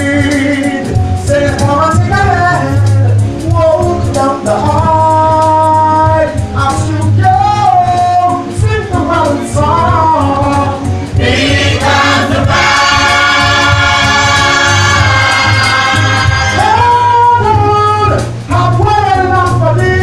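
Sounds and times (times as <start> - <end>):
choir singing: 11.2 - 16.8.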